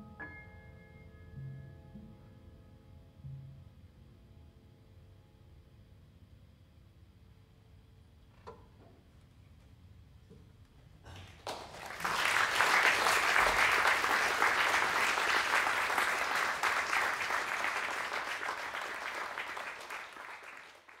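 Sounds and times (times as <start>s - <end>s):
audience applauding: 11.1s - 21.0s.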